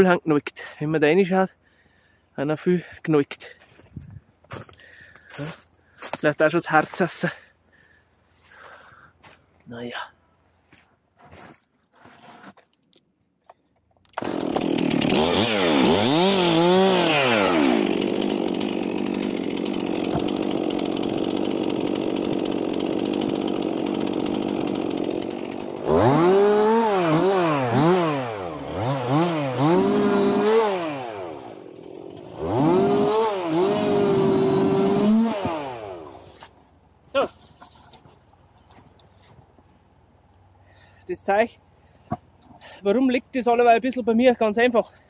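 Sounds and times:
chainsaw engine revving: 0:14.1 - 0:36.4.

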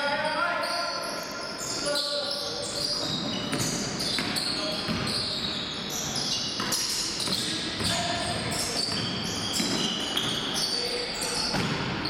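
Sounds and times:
sneakers squeaking on gym floor: 0:00.0 - 0:12.0
basketball bouncing: 0:11.5 - 0:11.9.

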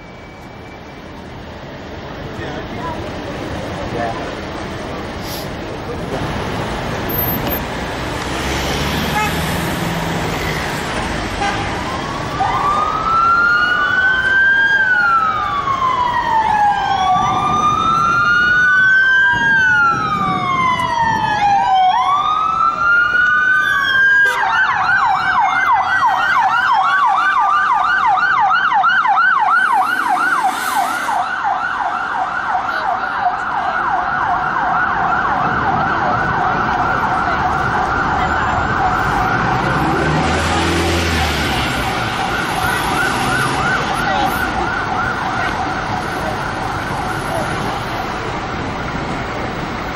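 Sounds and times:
second siren: 0:11.7 - 0:47.8
police siren wailing and yelping: 0:11.8 - 0:48.2.

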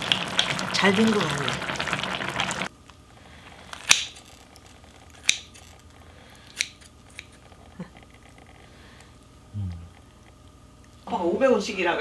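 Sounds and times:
kitchen scissors snipping: 0:05.1 - 0:05.7, 0:06.5 - 0:07.4.

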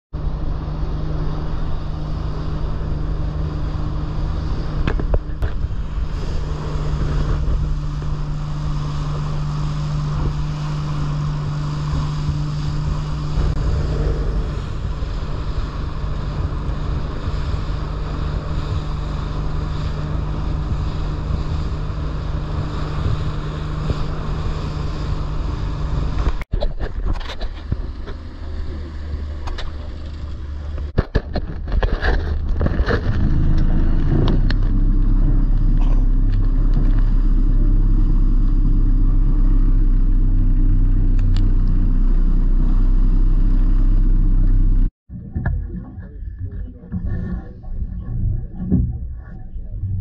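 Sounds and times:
boat engine humming: 0:00.2 - 0:50.0
water noise: 0:00.2 - 0:50.0
wind buffeting microphone: 0:00.4 - 0:41.9.

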